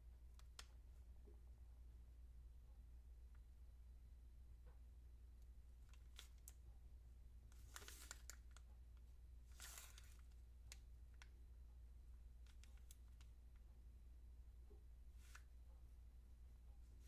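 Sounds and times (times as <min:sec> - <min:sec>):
low steady hum: 0:00.0 - 0:17.0
small clicks and taps: 0:00.3 - 0:00.8.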